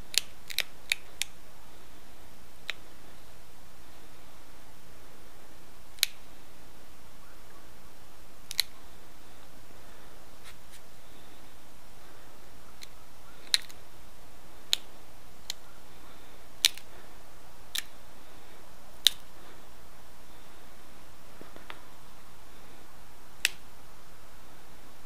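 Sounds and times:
stone flakes snapping off: 8.5s - 8.7s, 16.6s - 16.9s.

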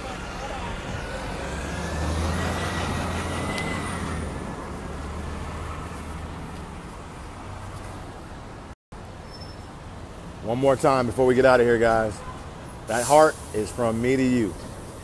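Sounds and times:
bus engine rumble with whine: 0.0s - 8.8s
street traffic noise: 0.0s - 15.0s.

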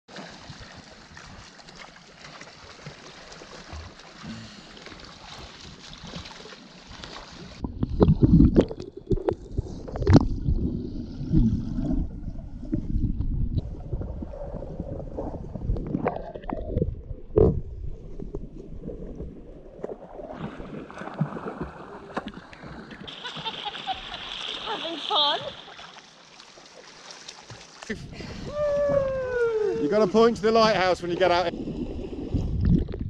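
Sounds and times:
knocks and splashes: 0.1s - 12.1s, 19.2s - 28.0s
water sloshing and gurgling: 0.1s - 33.0s.

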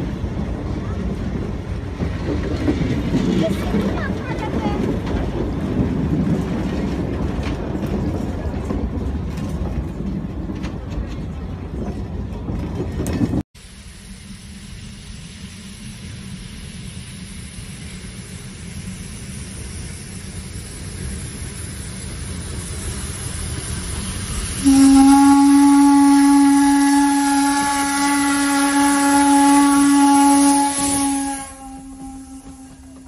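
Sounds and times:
steam locomotive rumble: 0.0s - 33.0s
steam whistle blast: 24.6s - 33.0s.

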